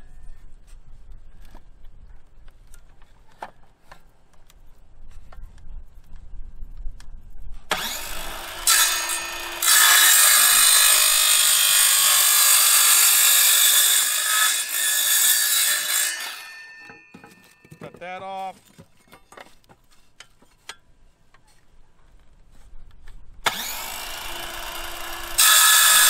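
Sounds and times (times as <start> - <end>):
circular saw cutting wood: 7.7 - 17.0, 23.5 - 26.0.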